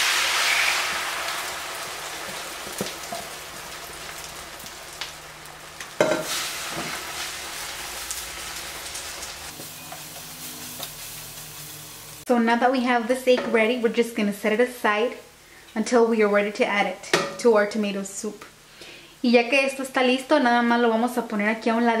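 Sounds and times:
egg sizzling in a frying pan: 0.0 - 12.3.

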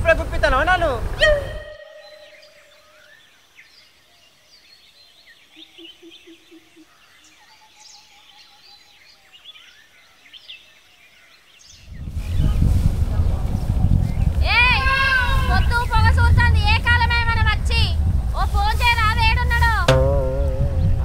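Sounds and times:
small birds chirping: 0.5 - 12.7
quick low pulses: 19.8 - 21.0.

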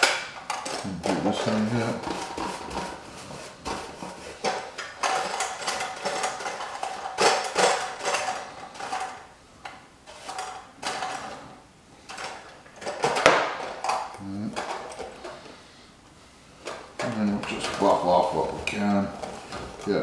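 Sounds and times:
paintbrush scrubbing on sheet metal: 1.1 - 4.8.

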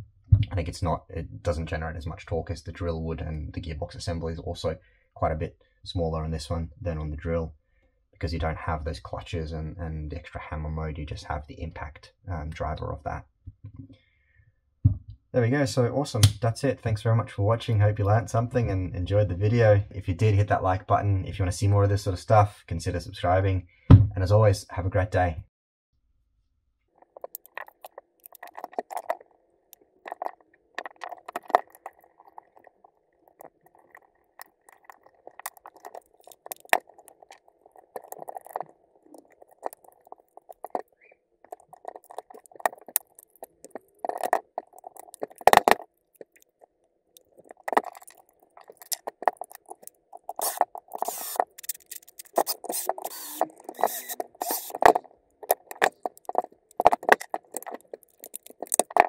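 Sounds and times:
tool parts clicking and scraping: 27.0 - 46.6, 47.2 - 59.0
cordless drill driving screws: 50.4 - 54.9.

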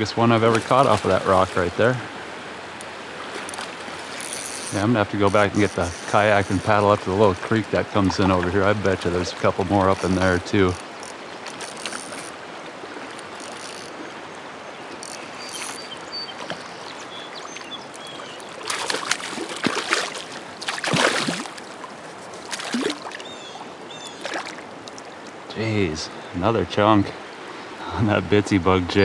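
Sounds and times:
water splashes: 0.0 - 25.5
river water rushing over rocks: 16.0 - 25.4.

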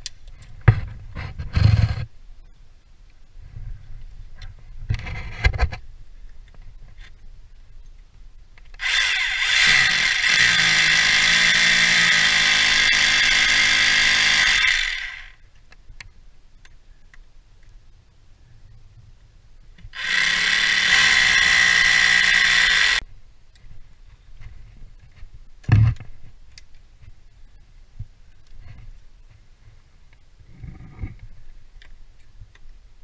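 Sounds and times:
hammer drill boring into brick: 8.8 - 15.4, 20.0 - 23.0.

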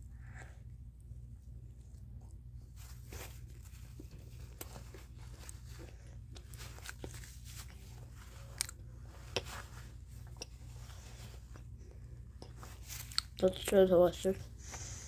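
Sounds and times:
steady low hum: 0.0 - 15.0
child chewing food: 1.4 - 13.6
wet mouth clicks: 12.4 - 13.4.

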